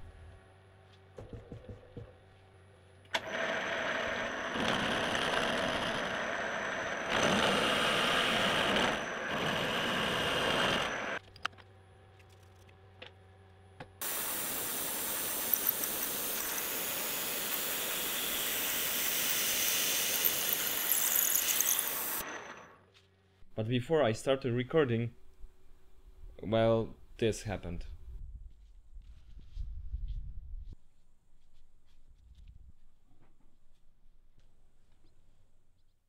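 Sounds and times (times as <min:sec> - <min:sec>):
drill boring into steel: 0:03.1 - 0:11.2, 0:14.0 - 0:22.8
end mill cutting steel: 0:03.1 - 0:11.2, 0:14.0 - 0:22.8.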